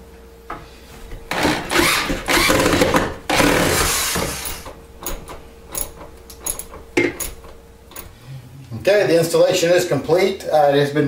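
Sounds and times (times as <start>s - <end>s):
power drill driving screws: 1.3s - 4.7s.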